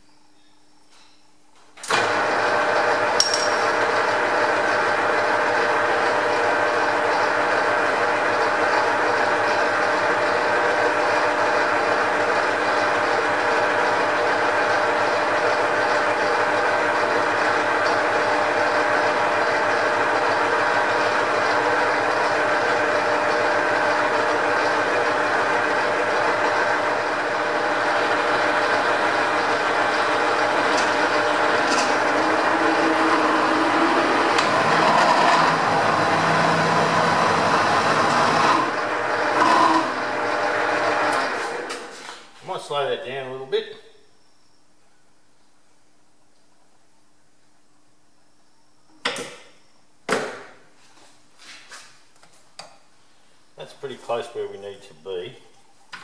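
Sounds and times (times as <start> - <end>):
metal lathe whirring: 1.9 - 41.8.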